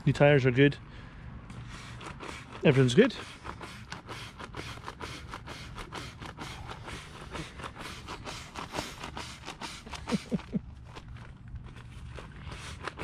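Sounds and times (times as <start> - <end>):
crackling and rustling handling: 7.5 - 13.0
man laughing: 9.7 - 10.7.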